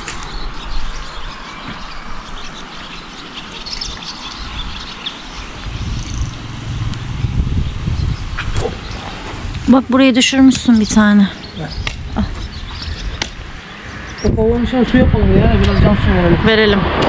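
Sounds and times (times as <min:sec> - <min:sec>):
small birds chirping: 0:00.0 - 0:16.6
low rumble: 0:05.4 - 0:17.0.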